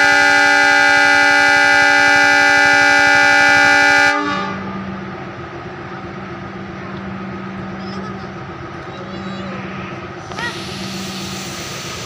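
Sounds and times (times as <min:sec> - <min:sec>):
locomotive horn blast: 0:00.0 - 0:05.0
diesel engine idling: 0:04.5 - 0:12.0.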